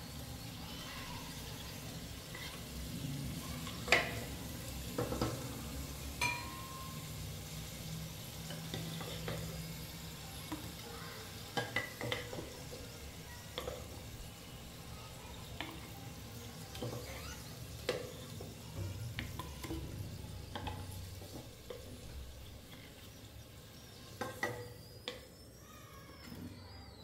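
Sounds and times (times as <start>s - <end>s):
food sizzling in oil: 0.0s - 26.6s
metal spatula scraping a pan: 1.6s - 2.8s.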